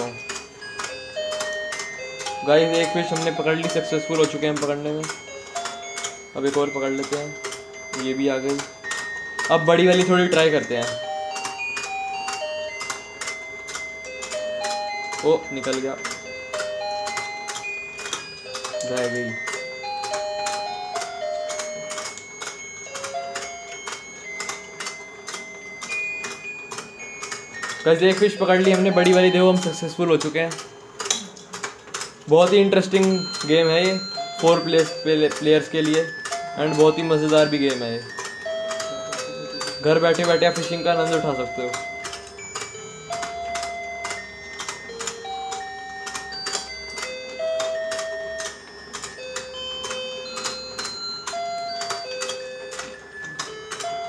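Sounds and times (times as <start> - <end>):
toy plastic mechanism clicking: 0.0 - 54.0
electronic beeping tune: 21.6 - 30.3, 32.5 - 47.0.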